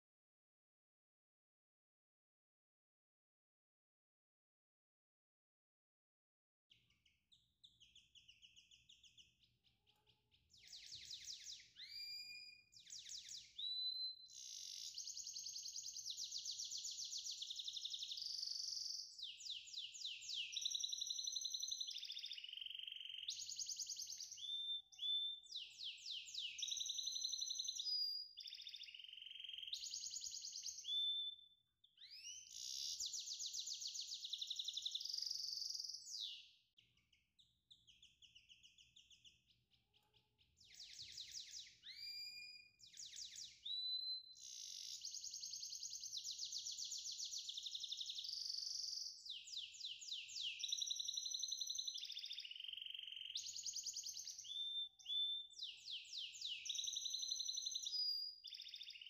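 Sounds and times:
songbird trilling and whistling: 10.5 - 36.6, 40.6 - 59.0.

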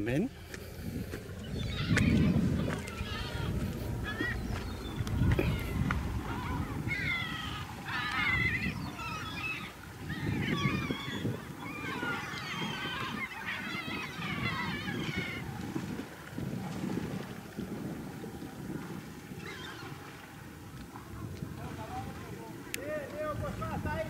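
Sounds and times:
gulls calling: 0.0 - 24.0
low rumble: 0.3 - 7.9.

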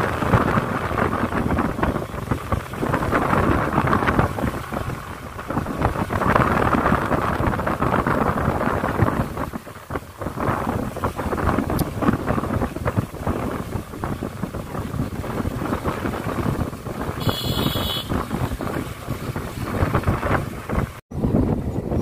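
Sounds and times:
motorcycle engine: 0.0 - 22.0
road noise: 0.0 - 22.0
wind buffeting microphone: 0.0 - 22.0.

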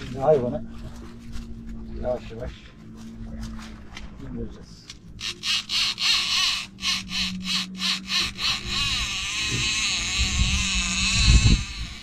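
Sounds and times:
fishing reel clicking: 5.2 - 12.0
fishing reel whirring: 5.2 - 12.0.

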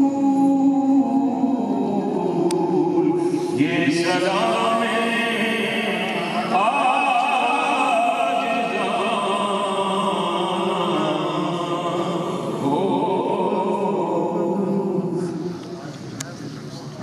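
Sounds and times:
man singing through loudspeaker: 0.0 - 16.0
men chanting together: 2.9 - 15.3.

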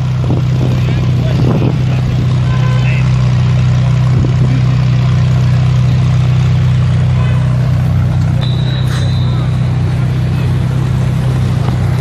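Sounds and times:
car engine running at low revs: 0.0 - 12.0.

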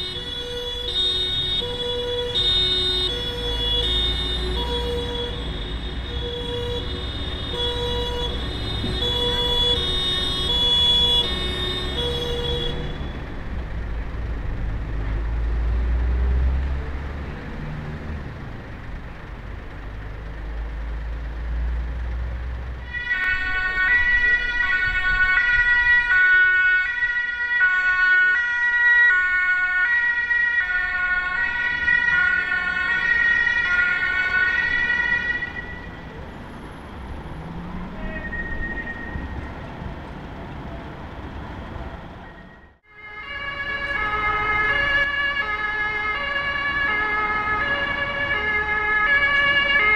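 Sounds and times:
two-tone siren: 0.0 - 13.4, 22.8 - 36.1, 37.7 - 39.6, 42.2 - 49.9
engine and traffic rumble: 0.0 - 49.9.

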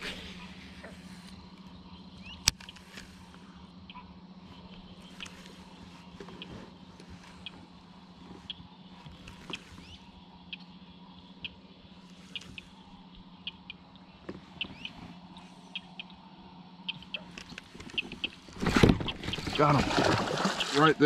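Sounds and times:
trolling motor hum: 0.0 - 21.0.

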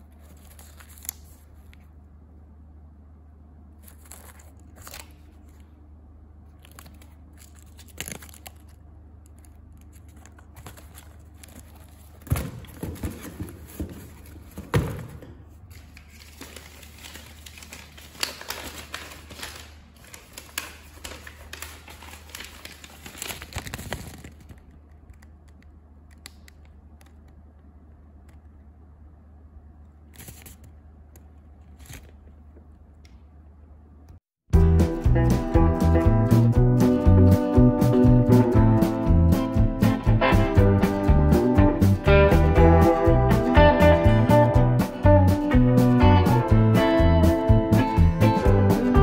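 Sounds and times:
paper and cardboard rustling: 0.0 - 1.9, 3.8 - 5.7, 6.6 - 24.7, 30.2 - 30.7, 31.6 - 32.7
steady low hum: 0.0 - 49.0.

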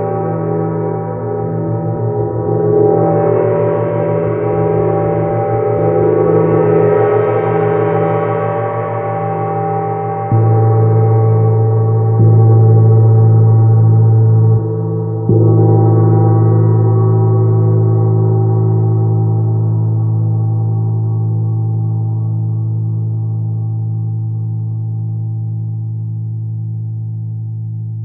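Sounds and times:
large gong ringing: 1.0 - 19.6
gong struck with felt mallet: 1.1 - 19.1.

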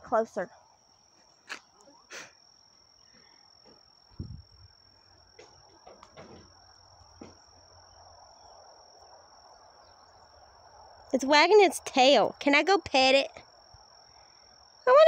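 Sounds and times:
faint knocks: 5.4 - 6.6.

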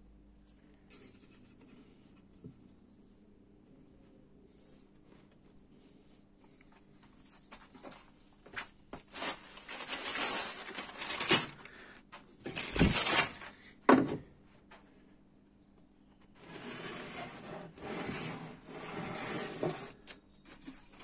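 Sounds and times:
tools rustling and clattering: 9.0 - 14.1.

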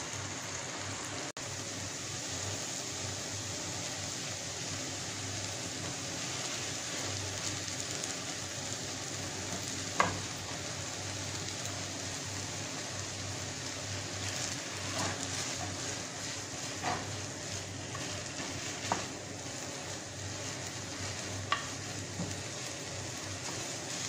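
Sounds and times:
noodles sizzling in a frying pan: 0.0 - 24.0
plastic spatula stirring: 14.3 - 24.0.

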